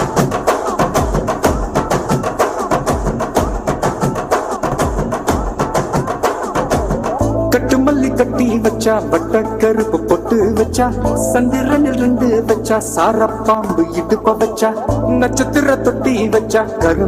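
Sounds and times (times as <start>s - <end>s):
percussive dance music: 0.0s - 17.0s
deep bass line: 6.6s - 17.0s.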